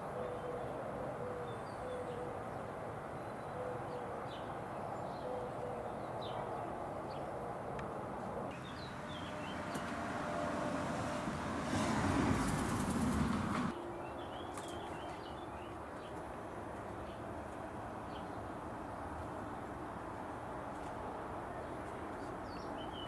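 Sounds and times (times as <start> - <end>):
small birds chirping: 8.5 - 10.1.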